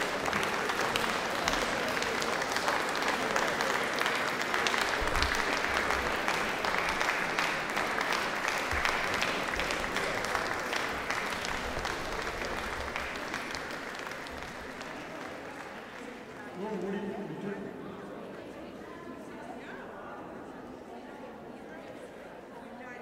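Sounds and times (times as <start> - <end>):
many hands clapping: 0.0 - 17.1.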